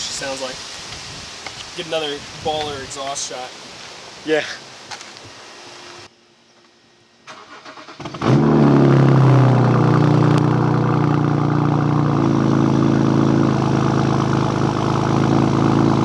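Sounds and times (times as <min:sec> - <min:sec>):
car engine cranking and idling: 0:07.3 - 0:16.0.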